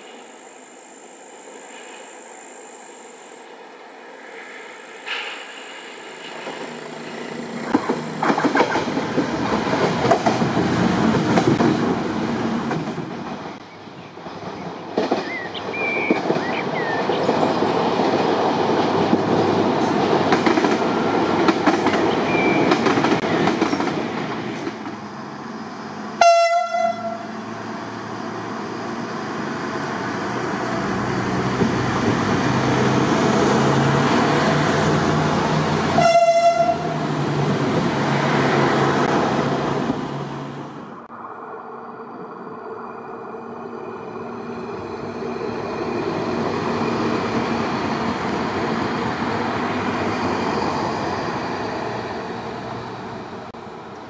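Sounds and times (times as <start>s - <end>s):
train rumbling over steel bridge: 0.0s - 54.0s
train horn toot: 26.2s - 27.4s, 35.9s - 37.0s.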